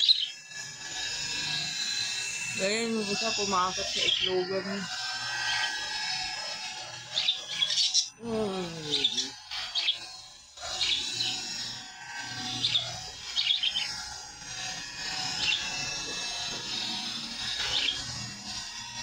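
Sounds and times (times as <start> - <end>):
budgerigars chirping: 0.0 - 0.6, 2.6 - 6.2, 7.0 - 8.2, 8.8 - 11.8, 12.4 - 14.1, 15.1 - 18.1.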